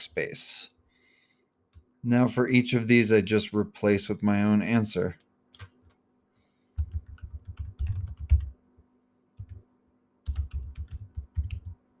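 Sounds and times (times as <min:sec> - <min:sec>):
keyboard typing: 0:05.5 - 0:06.0, 0:06.8 - 0:08.6, 0:09.4 - 0:09.6, 0:10.2 - 0:11.8.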